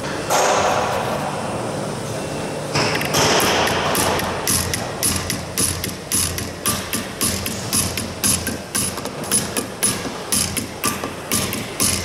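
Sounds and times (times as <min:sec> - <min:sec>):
hammer striking sheet metal: 0:02.8 - 0:12.0.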